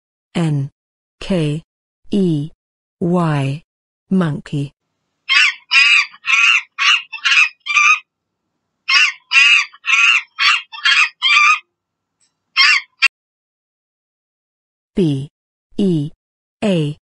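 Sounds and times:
monkey screeching calls: 5.3 - 8.0, 8.9 - 11.6, 12.6 - 13.1.

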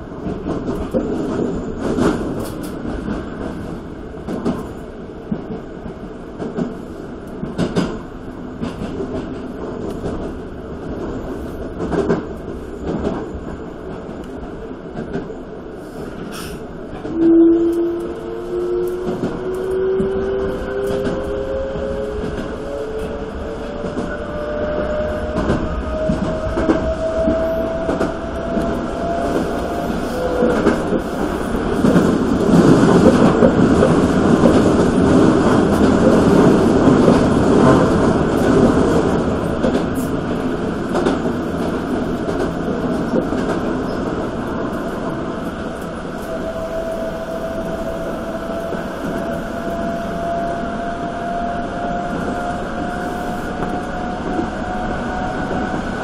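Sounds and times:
train wheels rumbling over rails: 0.0 - 56.0
train motor whine: 17.1 - 31.3.

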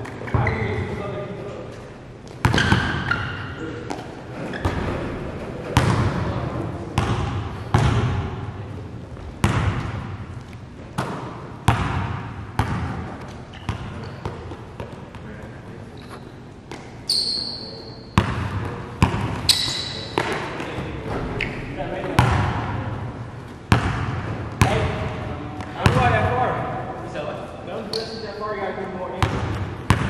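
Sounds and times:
basketballs bouncing on gym floor: 2.3 - 8.5, 9.2 - 15.4, 18.1 - 26.4, 29.2 - 30.0
high squeaks: 17.1 - 18.2, 19.5 - 20.2, 27.8 - 28.4.

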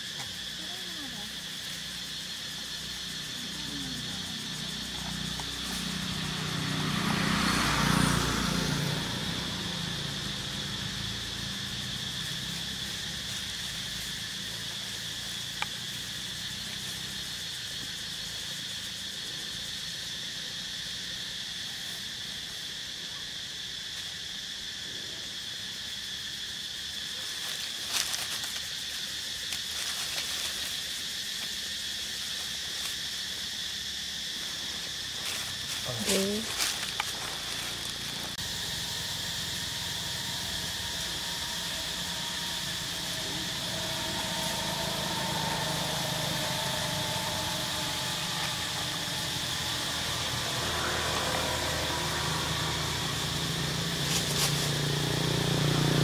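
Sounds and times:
high insect drone: 0.0 - 56.0.

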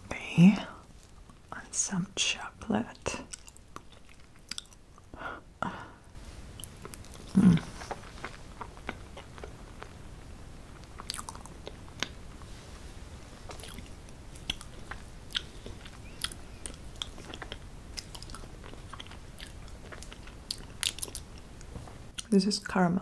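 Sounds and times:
low steady background noise: 0.0 - 23.0
chewing: 3.2 - 5.1, 6.6 - 10.0, 10.7 - 12.5, 13.4 - 22.3
wet mouth clicks and smacks: 3.3 - 4.8, 13.5 - 21.3.

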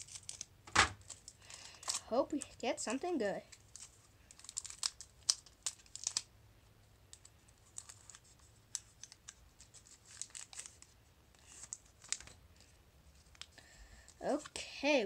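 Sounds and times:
foil wrapper crinkling: 0.0 - 2.6, 3.5 - 6.3, 7.1 - 12.4.

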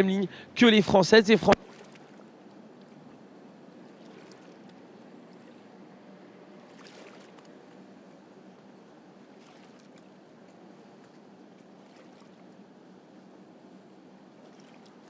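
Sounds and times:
faint outdoor background hiss: 0.0 - 15.0.

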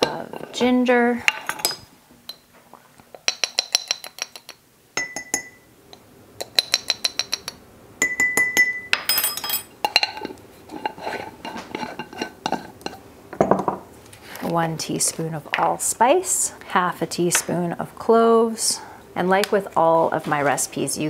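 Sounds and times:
metal spoon clinking against glass jar: 6.4 - 10.3.

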